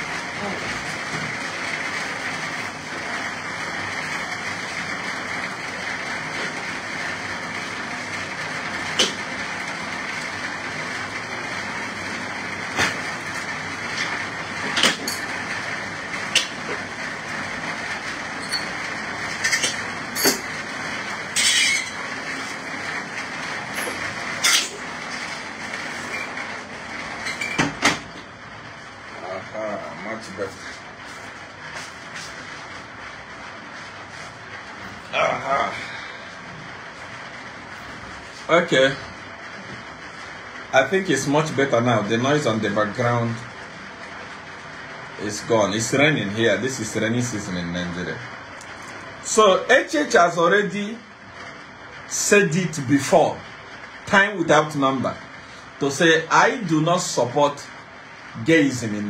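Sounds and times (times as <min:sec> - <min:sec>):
heavy rain hiss: 0:28.7 - 0:51.2, 0:51.8 - 0:59.0.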